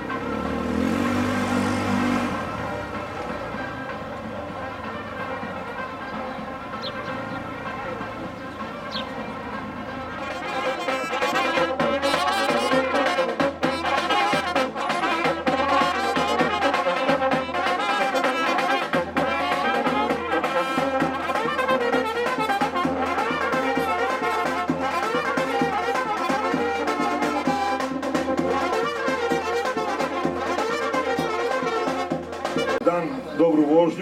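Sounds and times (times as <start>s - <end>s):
horn: 0.0s - 34.0s
trumpets: 0.0s - 34.0s
bass drum: 10.2s - 32.9s.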